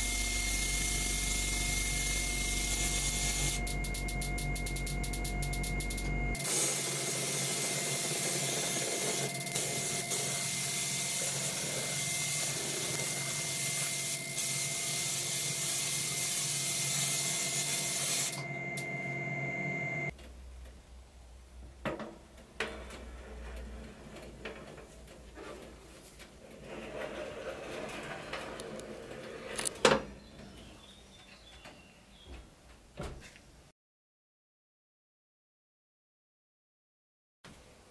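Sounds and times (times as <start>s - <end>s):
booth hum with high whine: 0.0s - 6.5s
powder coating gun hissing: 6.4s - 18.3s.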